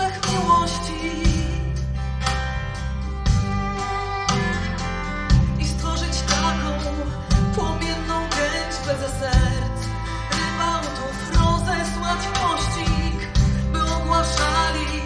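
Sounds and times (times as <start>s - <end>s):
woman singing slow melody: 0.0s - 2.0s, 5.3s - 15.0s
acoustic guitar: 0.0s - 15.0s
violin: 0.0s - 15.0s.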